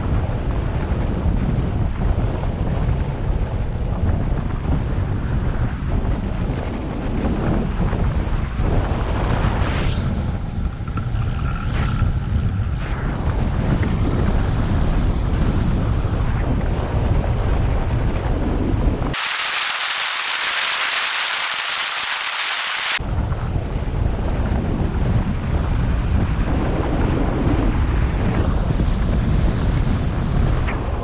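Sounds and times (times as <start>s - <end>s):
wind buffeting microphone: 0.0s - 19.2s, 23.0s - 31.0s
bright steady hiss: 19.2s - 23.0s.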